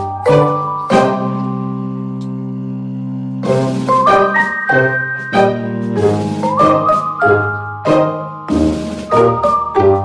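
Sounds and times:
instrumental music chords: 0:00.0 - 0:10.0.

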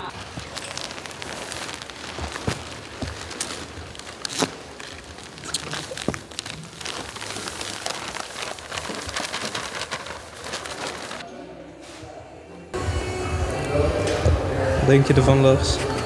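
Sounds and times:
sack crinkling: 0:00.0 - 0:11.2
sand pouring: 0:00.1 - 0:11.2.

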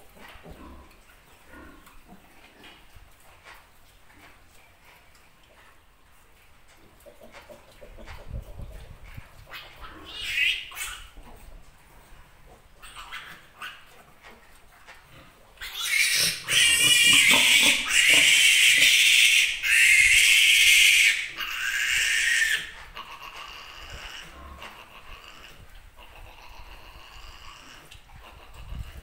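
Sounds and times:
piglet squealing: 0:09.5 - 0:11.1, 0:12.8 - 0:13.8, 0:15.6 - 0:27.8.

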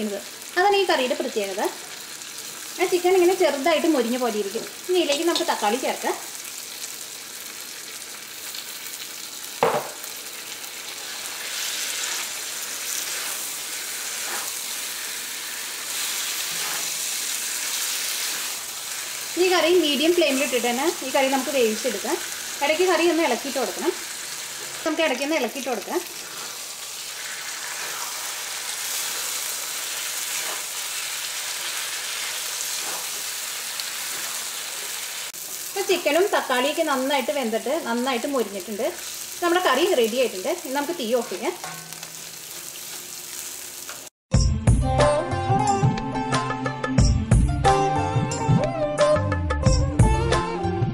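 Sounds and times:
chicken sizzling in hot oil: 0:00.0 - 0:44.2
sharp knock: 0:09.6 - 0:10.0
spatula stirring in wok: 0:11.0 - 0:19.4, 0:26.1 - 0:35.0.

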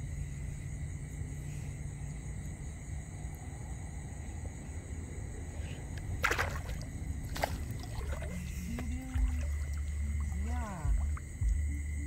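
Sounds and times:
low steady rumble: 0:00.0 - 0:12.0
hand splashing into water: 0:06.2 - 0:11.2.

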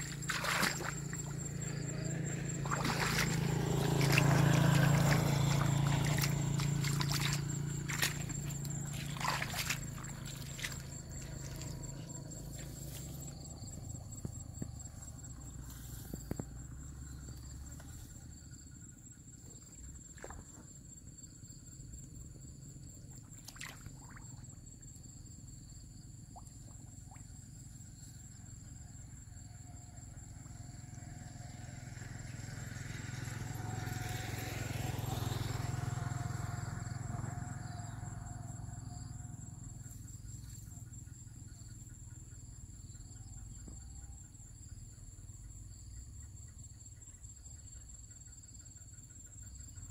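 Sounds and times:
passing vehicle engine: 0:00.0 - 0:18.5, 0:30.2 - 0:40.1
insects chirring: 0:00.0 - 0:49.9.

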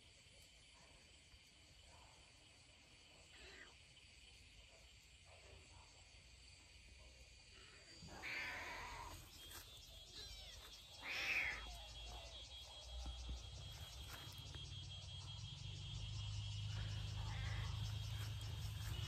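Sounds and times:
kitten meowing: 0:10.2 - 0:11.6.

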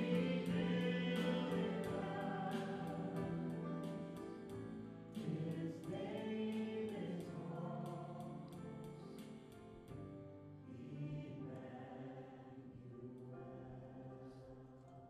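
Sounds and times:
instrumental accompaniment: 0:00.0 - 0:05.7
choir singing sustained notes: 0:00.0 - 0:08.6, 0:10.6 - 0:14.5.

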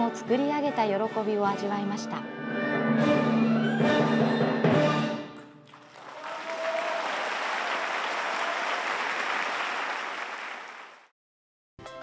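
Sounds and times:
audience applauding: 0:05.6 - 0:11.1.

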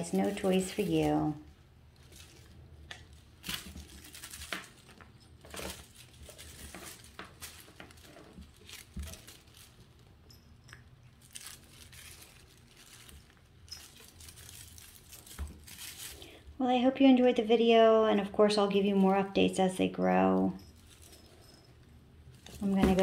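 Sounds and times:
feather toy rustling: 0:00.0 - 0:10.1, 0:11.2 - 0:16.6.

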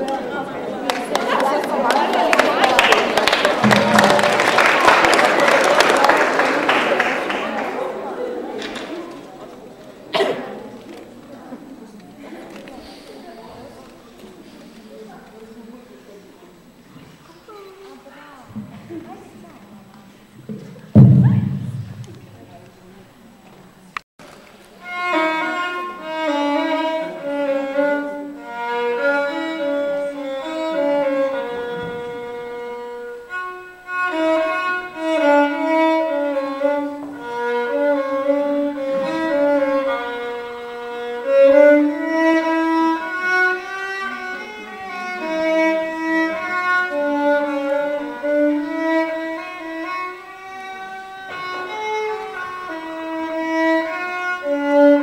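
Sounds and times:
solo violin melody: 0:24.6 - 0:55.0.

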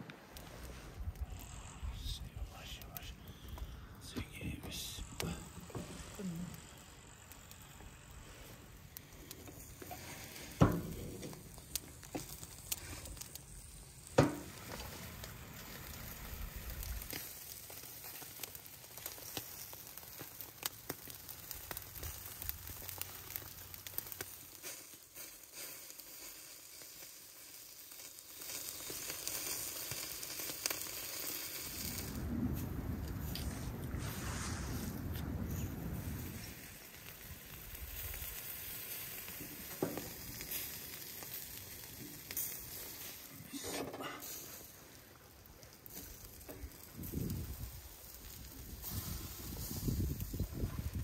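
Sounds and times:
kebabs sizzling over charcoal: 0:00.0 - 0:51.0
low wind rumble: 0:31.7 - 0:38.6, 0:46.7 - 0:51.0.

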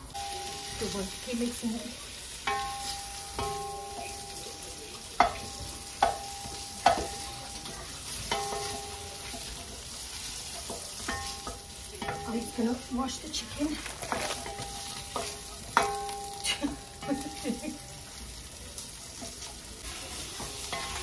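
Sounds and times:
onions sizzling in hot oil: 0:00.0 - 0:21.0
wooden spoon stirring: 0:05.2 - 0:18.2.

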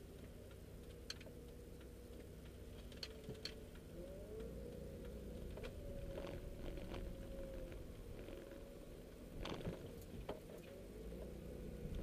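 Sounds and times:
light ticks and clicks: 0:00.0 - 0:08.7
car engine and road hum: 0:00.0 - 0:12.0.

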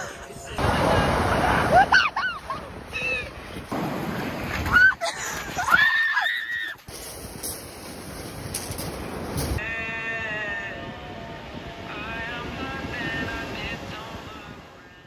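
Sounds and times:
surf breaking on shingle: 0:03.6 - 0:05.8.

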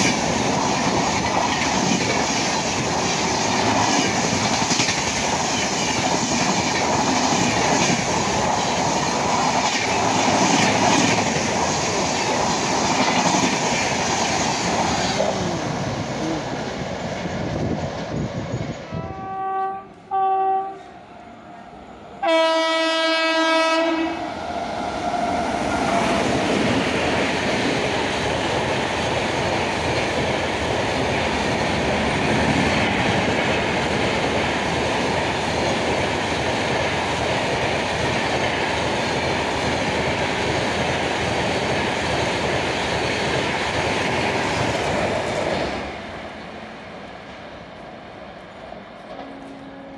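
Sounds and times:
train wheels on rails: 0:00.0 - 0:49.9
locomotive horn: 0:18.9 - 0:24.3, 0:49.2 - 0:49.9.

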